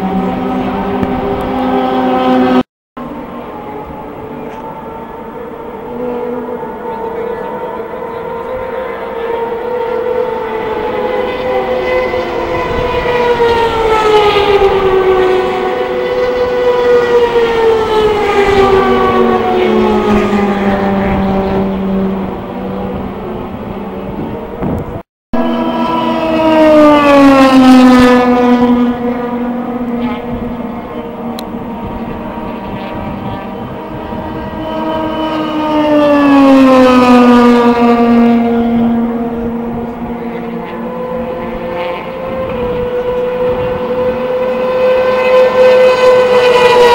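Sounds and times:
lower engine note: 0.0 - 46.9
race car engines at high revs: 0.0 - 46.9.

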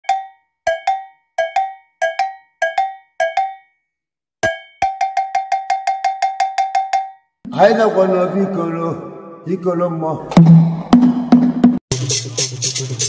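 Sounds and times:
metal bell struck in rhythm: 0.0 - 3.8, 4.4 - 7.2.

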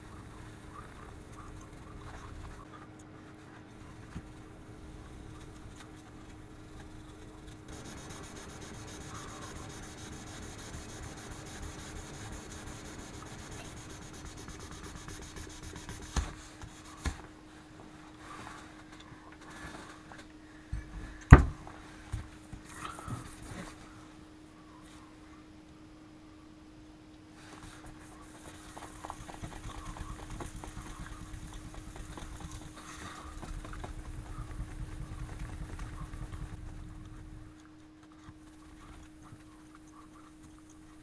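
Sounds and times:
faint steady hum: 0.0 - 41.0
sandpaper rubbing on steel: 7.7 - 16.2.

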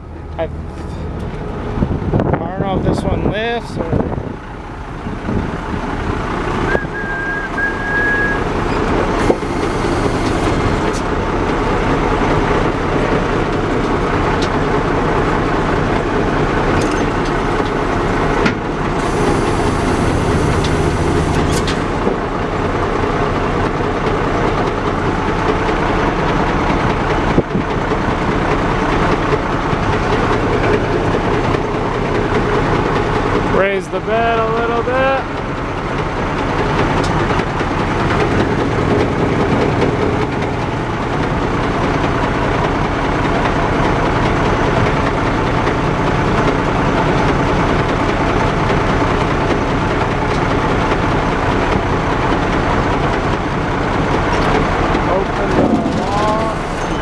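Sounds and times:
vacuum truck engine running: 0.0 - 57.0
hydraulic hiss: 9.2 - 10.9, 19.0 - 21.9
high whine: 16.8 - 22.8, 54.4 - 57.0.

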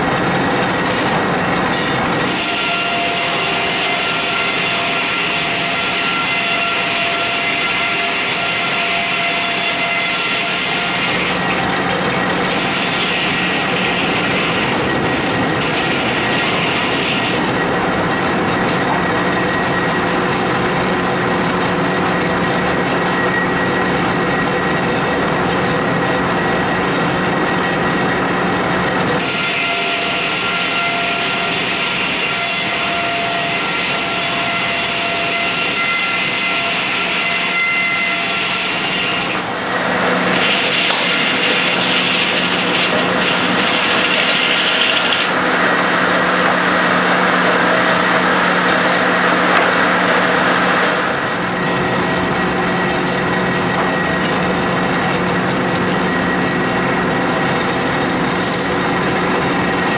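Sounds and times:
circular saw ripping log: 40.3 - 45.4.

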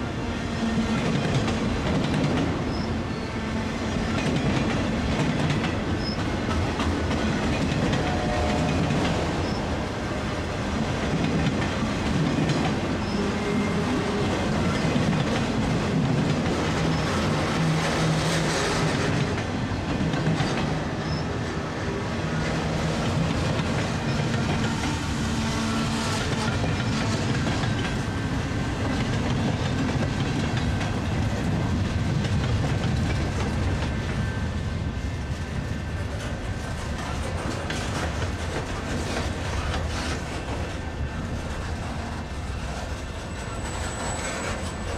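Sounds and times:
freight cars rumbling on rails: 0.0 - 44.9
faint short wheel squeals: 43.3 - 44.9.

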